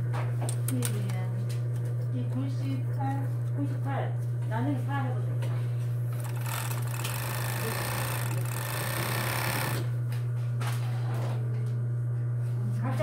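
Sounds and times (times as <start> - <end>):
steady low hum: 0.0 - 13.0
overlock machine stitching: 6.2 - 9.9.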